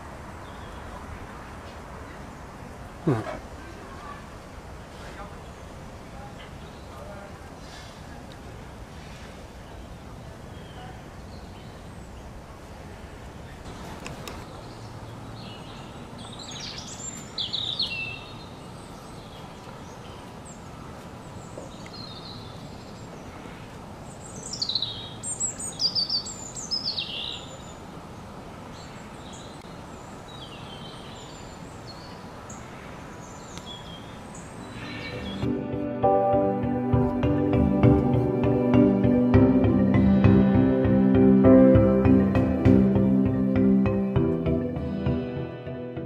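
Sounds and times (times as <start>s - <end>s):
outdoor background hiss: 0.0s - 46.0s
small birds chirping: 0.3s - 35.5s.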